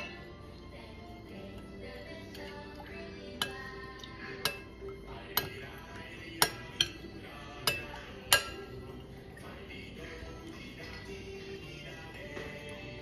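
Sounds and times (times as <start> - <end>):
spoon clinking on a bowl: 2.3 - 9.4.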